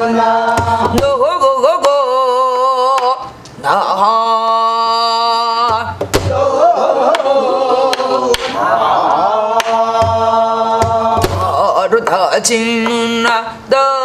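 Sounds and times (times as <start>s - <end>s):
woman singing wordless syllables: 0.0s - 6.0s, 10.1s - 14.0s.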